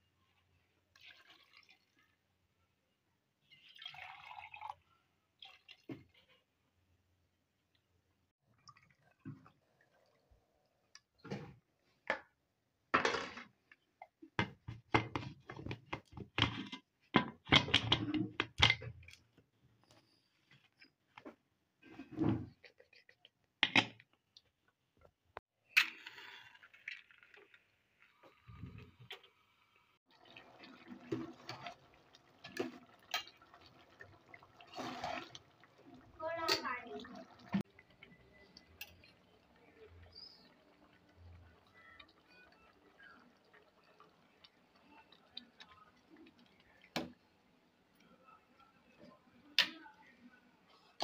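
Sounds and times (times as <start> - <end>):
ladle stirring thick gravy: 30.2 - 36.1.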